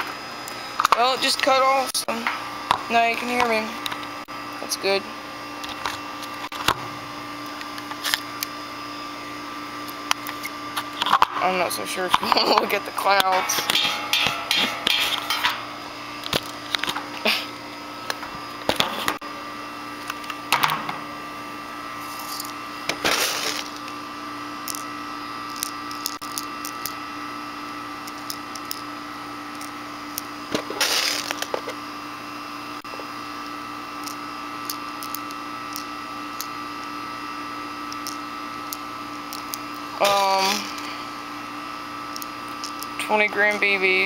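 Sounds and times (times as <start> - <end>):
air conditioner hum: 0.0 - 44.0.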